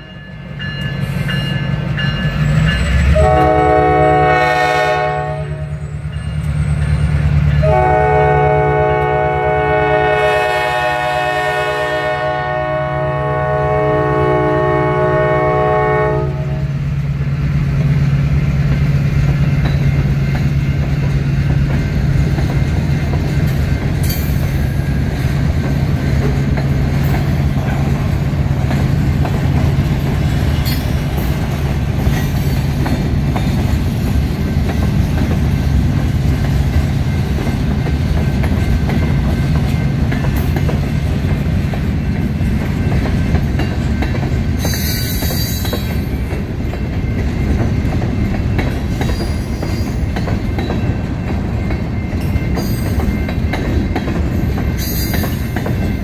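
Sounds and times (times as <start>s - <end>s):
freight cars rolling on rails: 0.0s - 12.4s, 13.1s - 56.0s
locomotive air horn: 3.2s - 5.8s, 7.6s - 16.8s.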